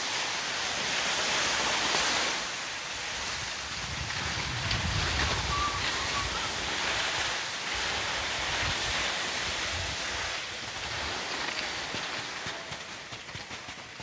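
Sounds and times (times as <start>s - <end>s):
steady hiss: 0.0s - 14.0s
wind buffeting microphone: 3.2s - 11.2s.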